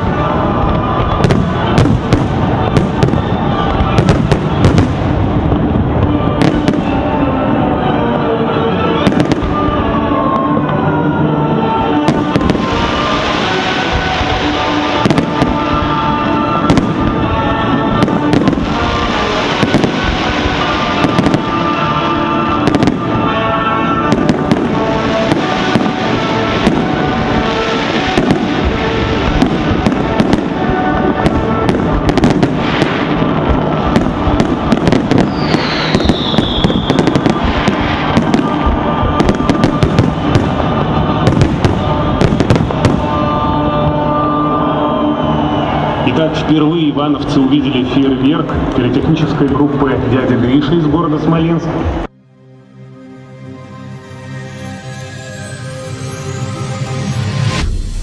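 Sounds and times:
fireworks bursting and crackling: 0.0 - 8.0, 8.8 - 11.0, 11.6 - 46.6
music: 0.0 - 58.0.

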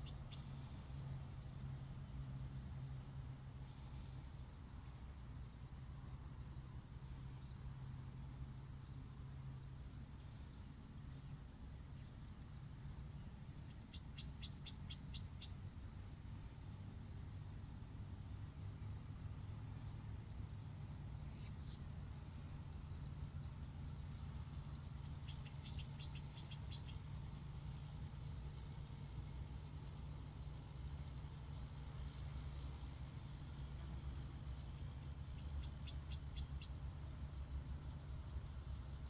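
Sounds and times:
bird chirping: 0.0 - 2.3, 13.0 - 17.4, 21.1 - 38.2
high insect drone: 0.0 - 39.0.

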